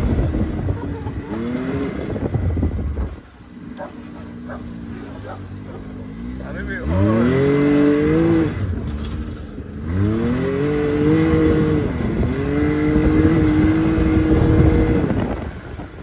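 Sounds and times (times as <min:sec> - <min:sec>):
engine accelerating: 0:00.0 - 0:16.0.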